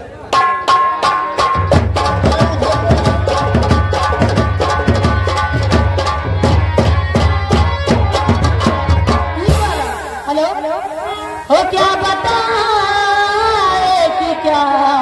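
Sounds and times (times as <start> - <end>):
hand drum rhythm: 0.3 - 12.0.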